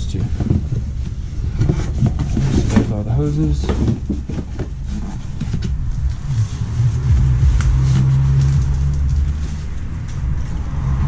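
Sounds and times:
rustling in cardboard box: 0.1 - 10.4
low-pitched drone: 5.1 - 11.0.

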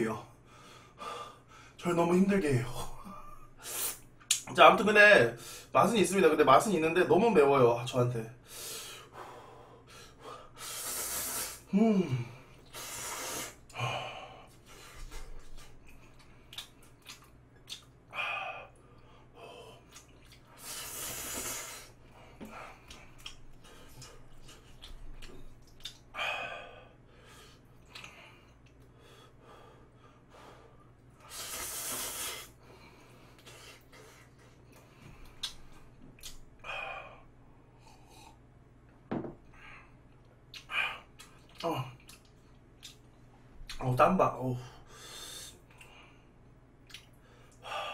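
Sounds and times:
slurping and chewing noodles: 15.4 - 18.0, 19.8 - 22.1, 22.7 - 26.1.

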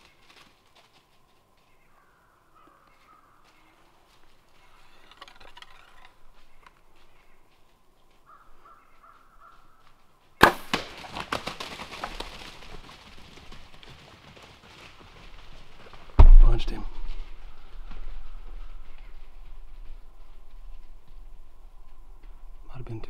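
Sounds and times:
deer running through dry leaves: 0.0 - 22.7
crows cawing: 1.7 - 3.9, 8.2 - 10.0
loud crack of a bow shot: 10.4 - 11.1.

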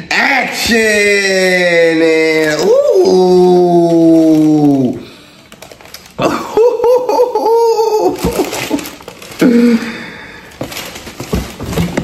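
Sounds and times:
excited laughter: 6.2 - 8.9.

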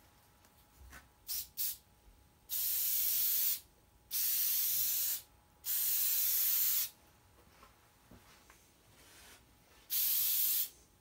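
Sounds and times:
aerosol spray hissing: 2.5 - 6.9, 9.9 - 10.7.

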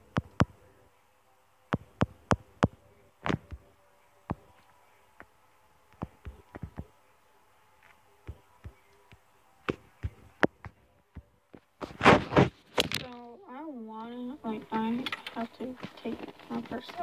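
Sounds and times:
rustling scrape of camera: 11.8 - 13.0.

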